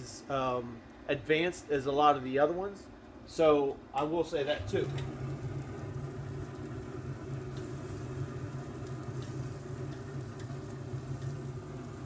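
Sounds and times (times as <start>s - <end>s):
steady low hum: 0.0s - 12.0s
meat sizzling on grill: 4.7s - 12.0s.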